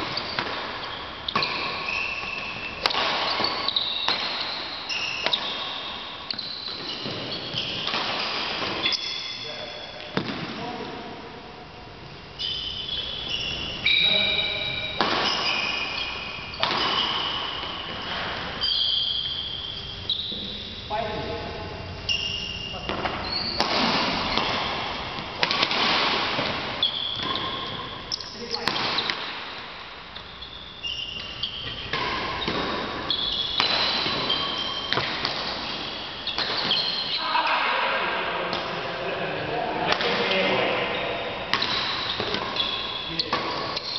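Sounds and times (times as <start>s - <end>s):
badminton racket strokes: 0.0s - 5.6s, 22.8s - 37.2s, 41.5s - 43.9s
shoes squeaking on court floor: 0.0s - 10.5s, 12.2s - 37.6s, 39.8s - 43.9s.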